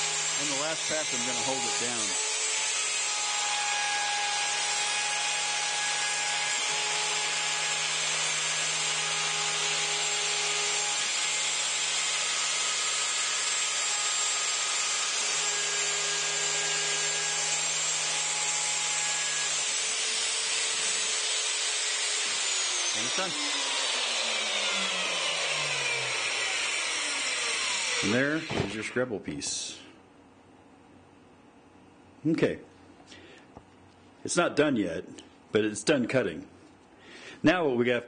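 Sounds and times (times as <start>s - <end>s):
router cutting wood: 0.0s - 29.0s.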